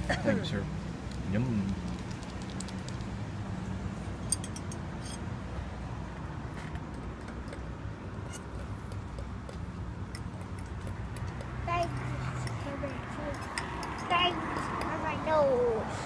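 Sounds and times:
light clicks and clinks: 8.3 - 14.9.

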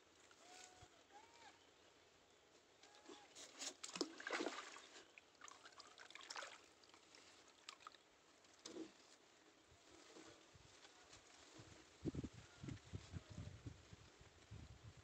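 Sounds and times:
water trickling: 3.9 - 8.1
louder water splashes: 4.0 - 6.6.

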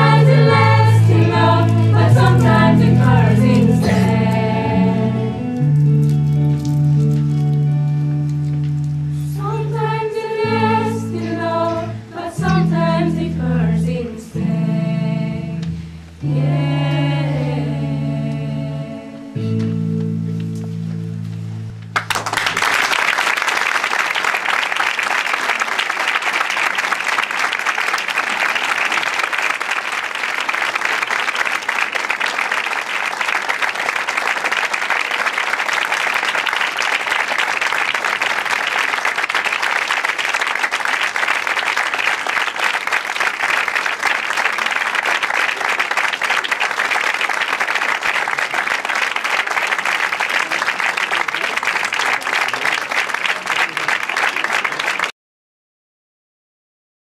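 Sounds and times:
audience applause: 0.0 - 4.5, 22.0 - 55.1
choir singing: 0.0 - 5.5, 9.2 - 19.6.

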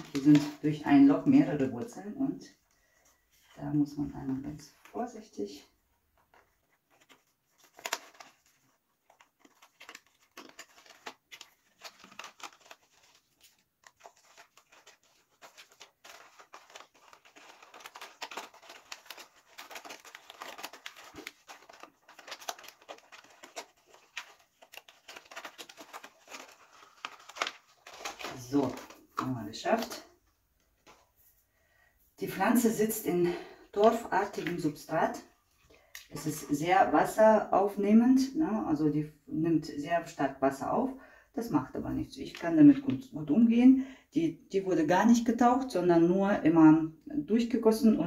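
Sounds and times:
plastic pot crinkling: 0.0 - 2.0, 6.1 - 31.2, 33.8 - 35.3
bark rustling: 14.0 - 28.6.

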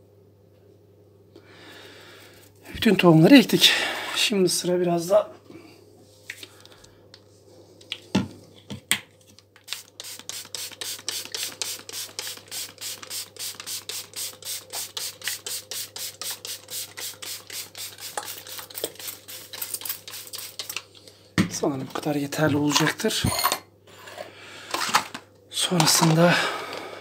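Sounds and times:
spray bottle hissing: 9.6 - 20.8.

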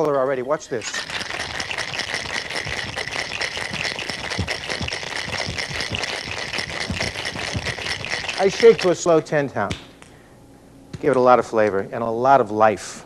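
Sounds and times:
ice rattling in cocktail shaker: 0.0 - 9.2.

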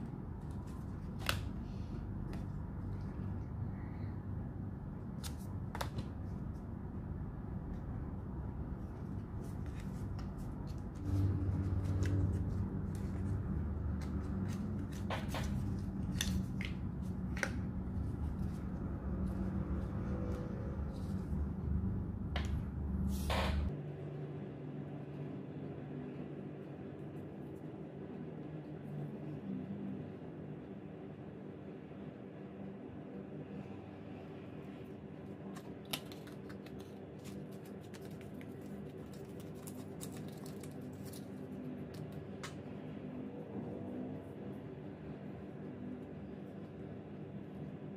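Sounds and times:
steady low hum: 0.0 - 47.9
paper rustling: 8.8 - 19.5, 35.5 - 42.5
paper snaps and crinkles: 35.5 - 42.7.

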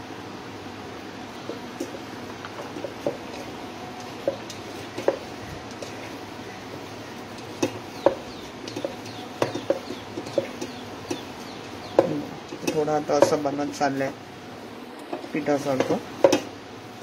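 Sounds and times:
steady hiss: 0.0 - 17.0
hands squelching dough: 1.4 - 13.9.

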